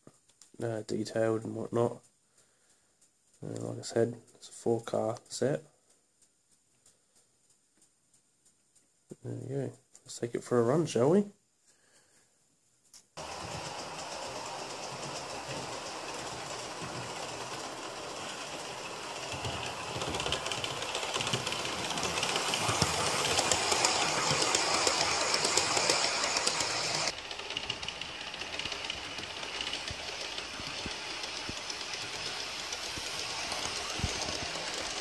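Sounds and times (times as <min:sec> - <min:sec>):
model train rattling on rails: 0:13.2 - 0:35.0.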